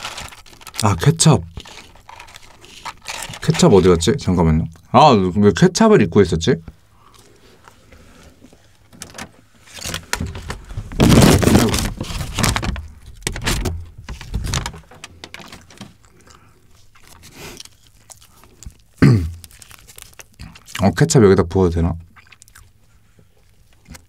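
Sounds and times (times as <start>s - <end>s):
paper bag rustling and crinkling: 0.0s - 4.1s, 8.9s - 16.1s.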